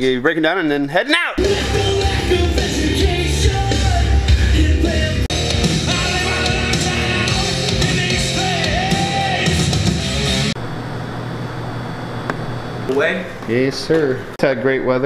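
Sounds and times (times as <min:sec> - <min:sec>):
rock music with singing: 0:01.4 - 0:10.6.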